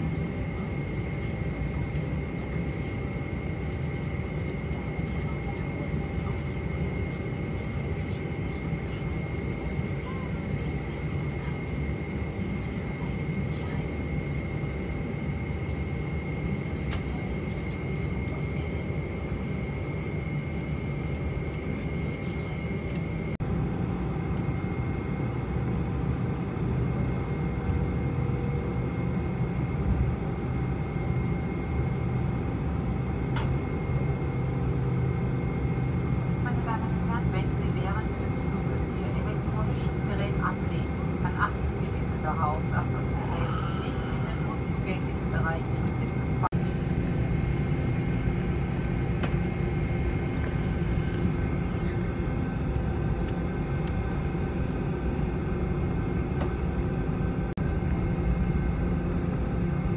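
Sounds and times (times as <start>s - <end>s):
aircraft engines idling rumble: 0.0s - 59.9s
thin steady whine: 0.0s - 59.9s.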